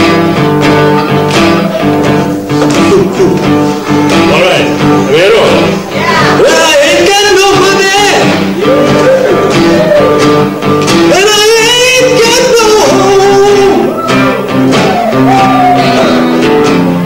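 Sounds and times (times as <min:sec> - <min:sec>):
bending lead melody: 0:00.0 - 0:17.0
strummed acoustic guitar: 0:00.0 - 0:17.0.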